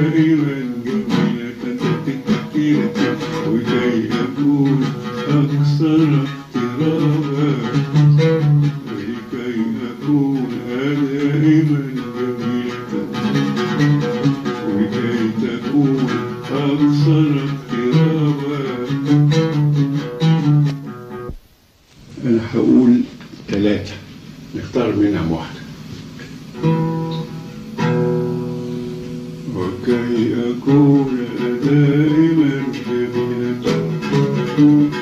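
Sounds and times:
man singing: 0:00.0 - 0:19.6, 0:29.5 - 0:35.0
oud playing melody: 0:00.0 - 0:21.4, 0:22.0 - 0:35.0.

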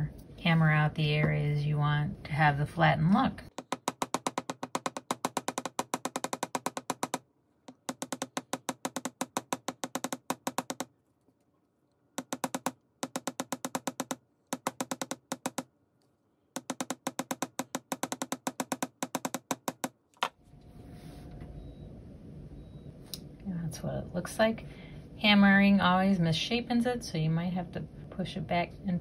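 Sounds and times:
hammer tapping metal: 0:03.5 - 0:10.9, 0:12.2 - 0:15.6, 0:16.6 - 0:19.9.

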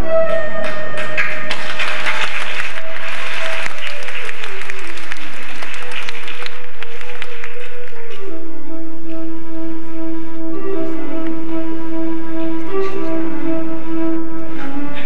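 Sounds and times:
slow melody of held notes: 0:00.0 - 0:01.6, 0:05.8 - 0:15.0
audience applauding: 0:00.6 - 0:08.2.

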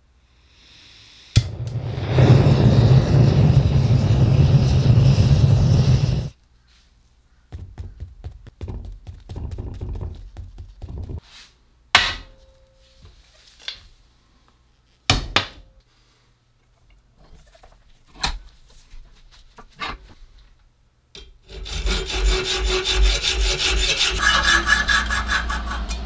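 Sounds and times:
gas burner rushing: 0:01.3 - 0:06.4.

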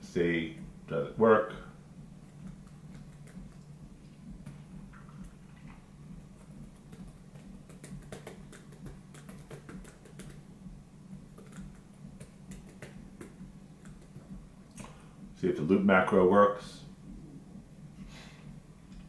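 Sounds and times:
steady low hum: 0:00.0 - 0:19.0
keyboard keys clicking: 0:06.4 - 0:10.4, 0:11.3 - 0:14.3.

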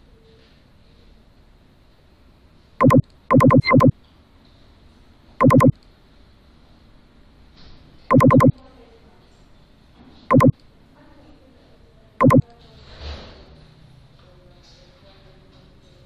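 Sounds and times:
loud electronic beeps: 0:02.8 - 0:03.9, 0:05.4 - 0:05.7, 0:08.1 - 0:08.5, 0:10.3 - 0:10.5, 0:12.2 - 0:12.4.

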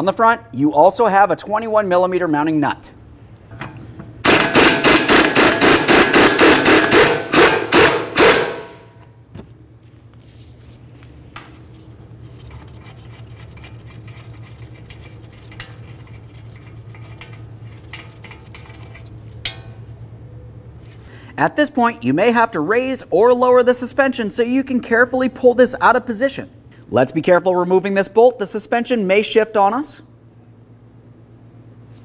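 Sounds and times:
impact gun hammering: 0:04.2 - 0:08.9.

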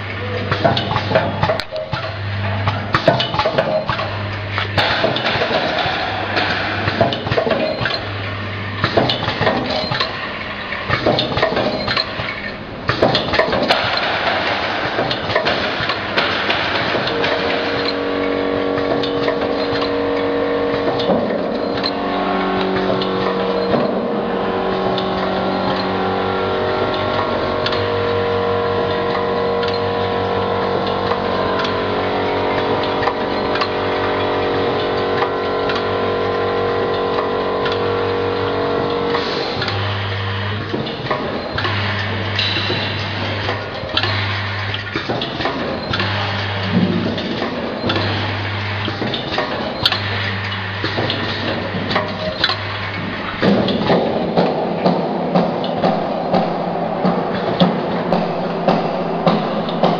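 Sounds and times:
machine clattering: 0:00.0 - 0:59.9
bowl feeder humming: 0:16.9 - 0:40.7.

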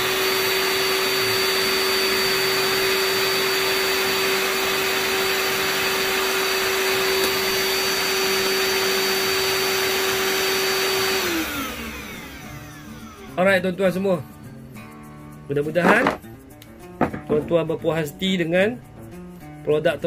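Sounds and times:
drill boring hole: 0:00.0 - 0:13.4
dust extractor whining: 0:00.0 - 0:13.6, 0:15.8 - 0:16.2.

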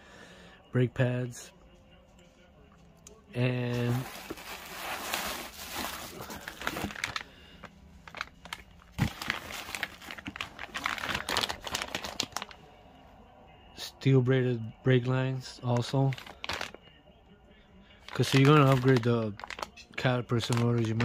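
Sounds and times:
plastic packaging crinkling: 0:03.6 - 0:12.6, 0:15.8 - 0:16.8, 0:18.0 - 0:21.0.

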